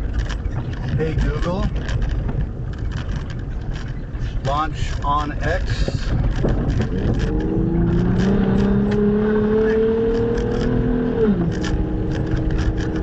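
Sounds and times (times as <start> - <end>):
stones ticking against car: 0.0 - 9.0, 11.5 - 13.0
tyres rumbling on gravel: 0.0 - 13.0
car engine accelerating: 6.2 - 13.0.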